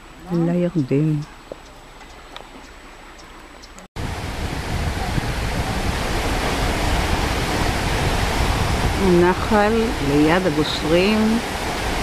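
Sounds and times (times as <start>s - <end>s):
stream rushing over rapids: 4.0s - 12.0s.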